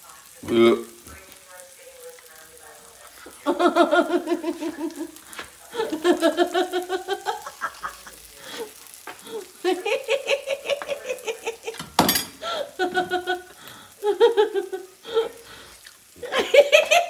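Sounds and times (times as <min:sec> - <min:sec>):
person laughing: 0:03.5 - 0:11.8, 0:12.4 - 0:15.4, 0:16.2 - 0:17.0.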